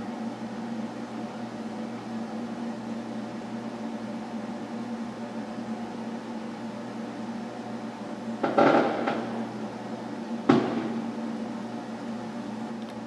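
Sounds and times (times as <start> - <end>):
steady low hum: 0.0 - 13.0
knocks on wooden desk: 10.5 - 10.9.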